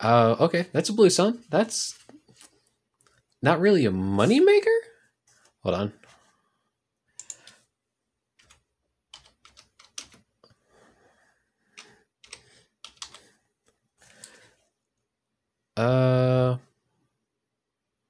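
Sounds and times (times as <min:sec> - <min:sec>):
typing on computer keyboard: 0:07.2 - 0:07.6, 0:08.4 - 0:10.3, 0:11.7 - 0:13.3.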